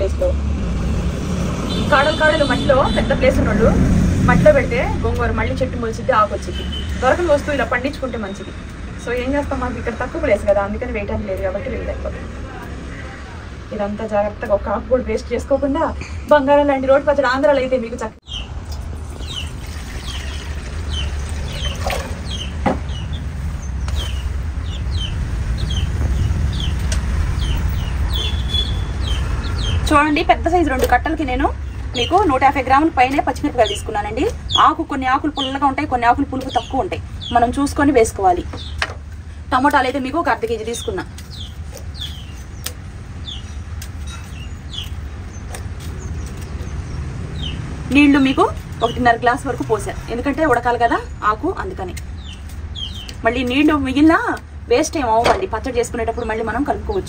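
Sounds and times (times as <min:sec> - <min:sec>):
bird chirping: 0:18.2 - 0:29.9, 0:33.4 - 0:38.9, 0:40.6 - 0:50.1, 0:52.0 - 0:53.7
water pouring into a pot: 0:19.0 - 0:22.2.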